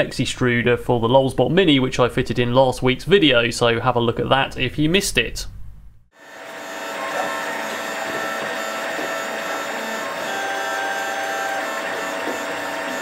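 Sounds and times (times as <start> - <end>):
stepper motors whining: 6.2 - 13.0.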